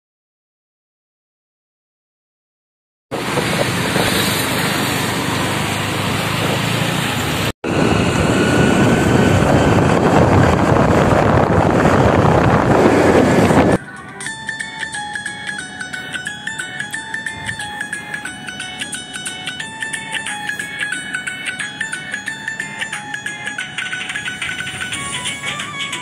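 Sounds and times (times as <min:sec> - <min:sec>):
wind rumble on microphone: 0:03.1 - 0:13.8
vehicle noise: 0:03.1 - 0:26.0
plucked string music: 0:13.8 - 0:26.0.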